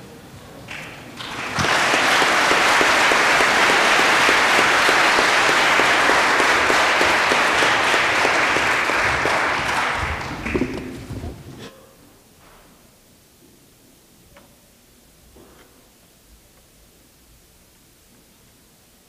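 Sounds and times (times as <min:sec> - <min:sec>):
audience applauding: 0:00.7 - 0:11.1.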